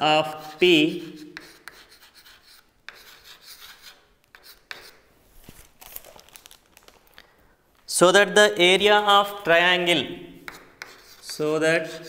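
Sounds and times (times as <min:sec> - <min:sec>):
chalk scratching on chalkboard: 0:00.0 - 0:05.0, 0:09.3 - 0:12.0
chalk tapping: 0:00.2 - 0:05.0, 0:08.8 - 0:12.0.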